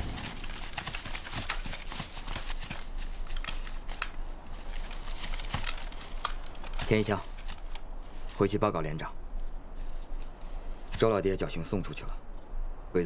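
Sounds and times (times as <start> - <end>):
footsteps in dry grass: 0.0 - 8.6, 9.4 - 11.1.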